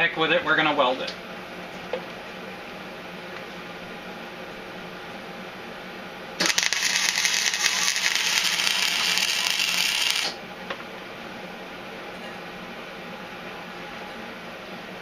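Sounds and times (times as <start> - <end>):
welder crackling: 6.4 - 10.4.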